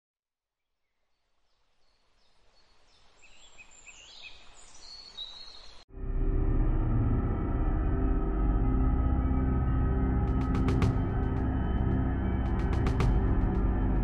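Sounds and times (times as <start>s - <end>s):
small birds chirping: 0.8s - 5.8s
loud ambient music: 5.9s - 14.0s.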